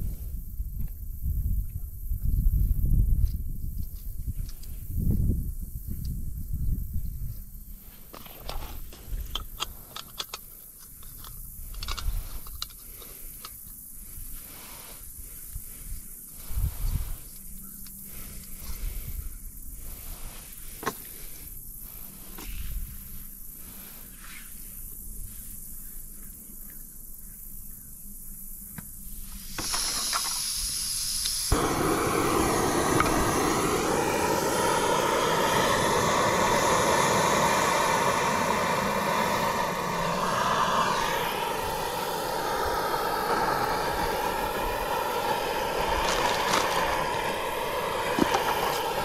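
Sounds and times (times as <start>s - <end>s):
gas stove burner hissing: 29.0s - 49.0s.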